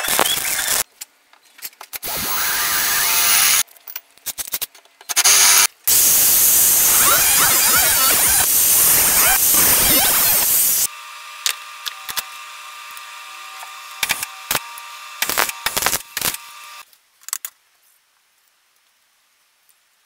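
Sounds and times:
electric welder hum: 0:00.0 - 0:00.8, 0:02.0 - 0:03.6, 0:05.2 - 0:16.8
welding crackles: 0:00.0 - 0:00.9, 0:05.1 - 0:10.9, 0:13.9 - 0:16.9
angle grinder cutting steel: 0:02.0 - 0:03.6, 0:05.2 - 0:16.8.

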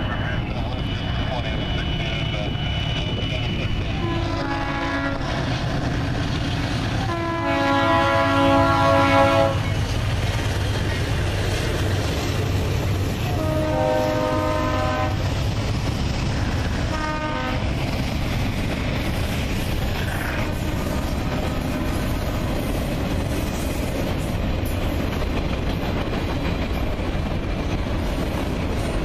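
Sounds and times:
freight train rumbling past: 0:00.0 - 0:29.0
locomotive air horn blasts: 0:03.9 - 0:05.5, 0:07.0 - 0:09.7, 0:13.3 - 0:15.2, 0:16.9 - 0:17.6.

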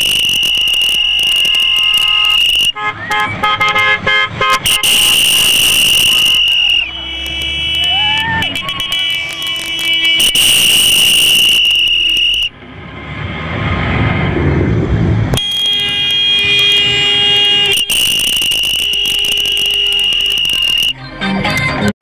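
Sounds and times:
high-pitched alarm tone: 0:00.0 - 0:02.7, 0:04.7 - 0:07.2, 0:10.2 - 0:12.5, 0:17.6 - 0:20.9
jeep engine and road noise: 0:00.0 - 0:22.0.

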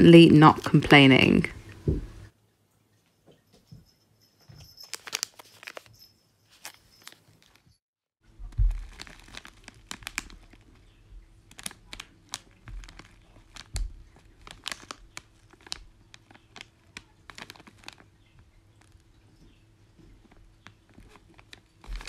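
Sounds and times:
packaging crinkling and rustling: 0:04.7 - 0:22.0.

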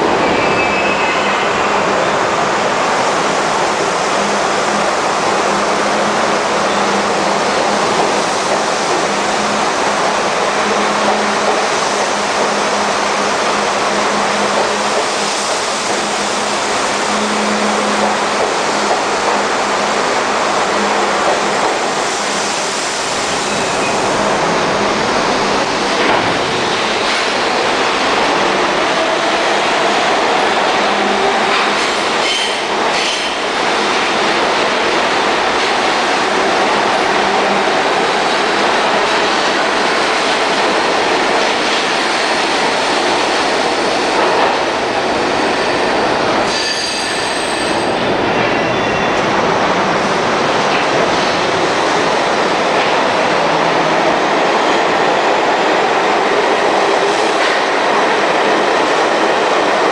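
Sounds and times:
subway train rumbling: 0:00.0 - 0:59.9
high-pitched wheel squeal: 0:46.5 - 0:47.8.

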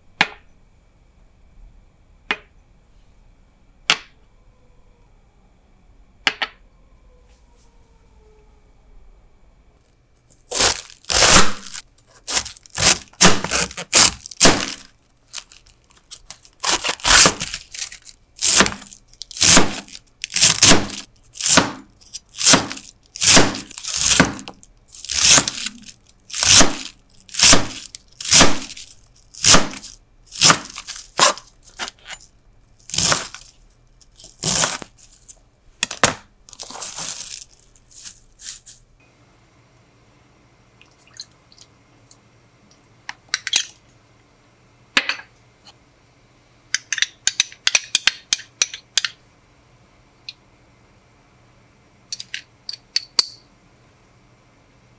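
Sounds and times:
knife slicing cabbage: 0:10.5 - 0:15.5, 0:16.4 - 0:32.2, 0:32.9 - 0:33.4, 0:34.1 - 0:35.4, 0:36.0 - 0:38.8.

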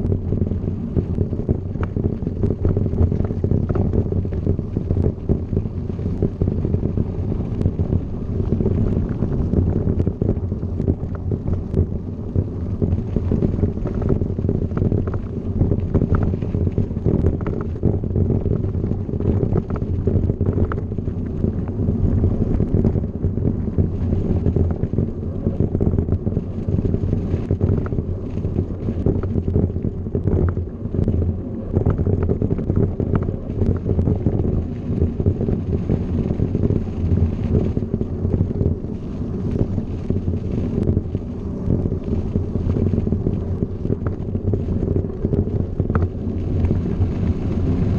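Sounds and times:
wind buffeting microphone: 0:00.0 - 0:47.9.

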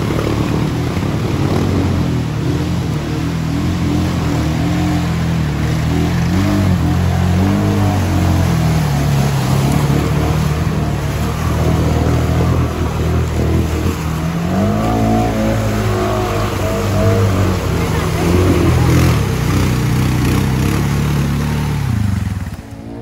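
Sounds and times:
atv engine revving: 0:00.0 - 0:23.0
water splashing: 0:00.0 - 0:23.0.

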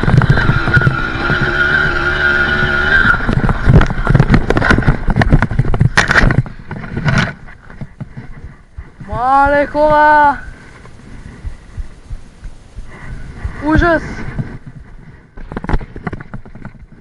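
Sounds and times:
rustling through dry grass: 0:00.0 - 0:17.0
two-stroke engine running: 0:00.0 - 0:17.0
thuds and scrapes of crash: 0:03.3 - 0:08.3.

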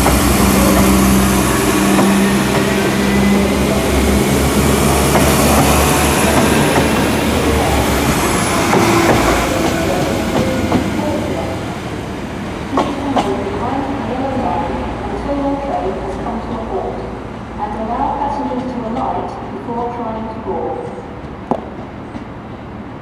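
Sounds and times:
train wheels clicking on rail joints: 0:00.0 - 0:11.4, 0:12.7 - 0:13.6
diesel train engine humming: 0:00.0 - 0:23.0.

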